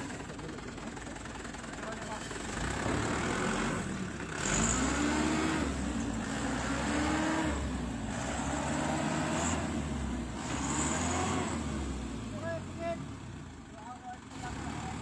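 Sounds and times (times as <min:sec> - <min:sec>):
diesel truck engine revving: 0:00.0 - 0:15.0.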